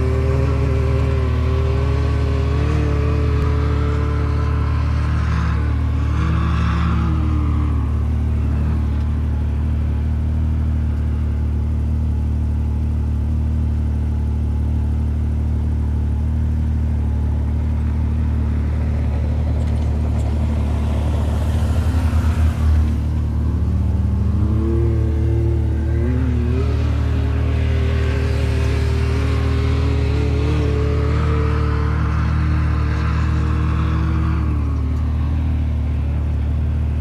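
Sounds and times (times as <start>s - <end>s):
utility vehicle revving past: 0.0s - 9.2s, 17.9s - 37.0s
utility vehicle engine idling: 0.0s - 37.0s.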